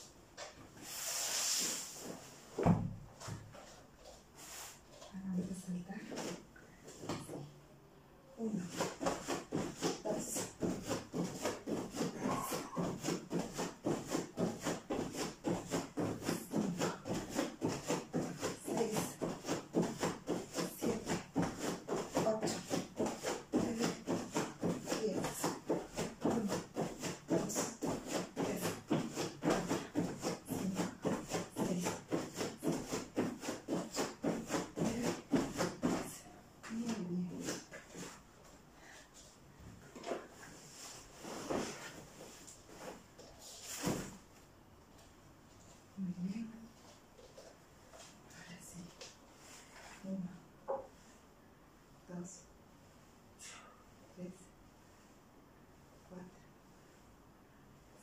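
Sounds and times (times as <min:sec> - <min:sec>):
bare feet thudding on foam mat: 0:00.4 - 0:07.5, 0:08.5 - 0:44.4.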